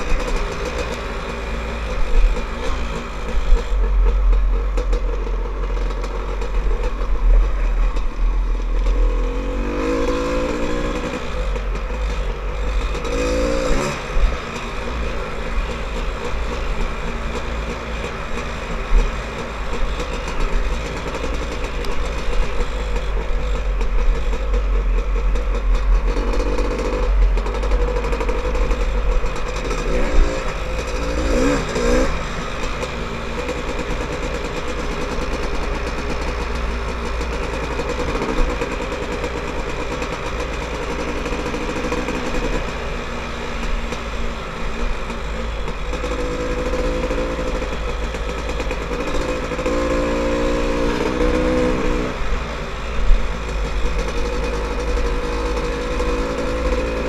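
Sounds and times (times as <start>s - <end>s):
dirt bike engine revving: 5.8s - 36.4s, 45.7s - 57.0s.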